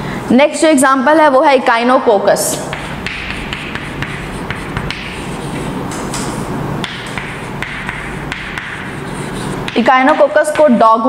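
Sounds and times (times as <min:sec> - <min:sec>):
steady low hum: 0:00.0 - 0:11.0
chalk writing on blackboard: 0:02.7 - 0:10.8.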